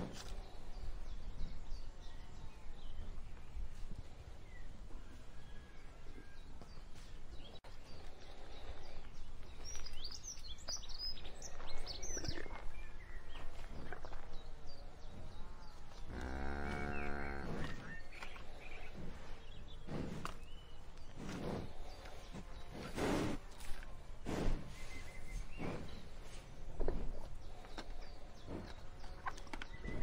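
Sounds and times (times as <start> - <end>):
birds chirping: 0.0 - 30.0
cow mooing: 16.1 - 17.8.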